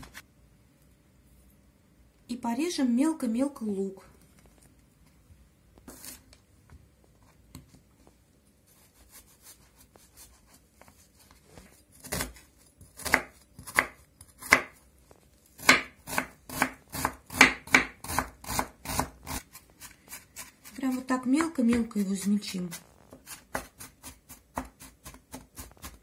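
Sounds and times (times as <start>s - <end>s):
knife slicing onion: 8.7s - 14.9s, 15.5s - 26.0s
knife chopping on wooden board: 12.0s - 14.8s, 15.6s - 22.3s, 23.1s - 26.0s.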